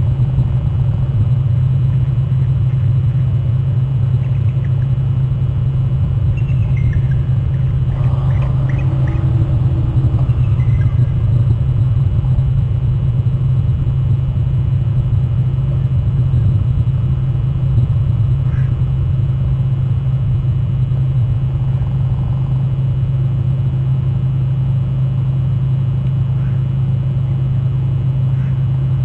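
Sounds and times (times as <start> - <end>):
loud low rumble: 5.1 - 24.4.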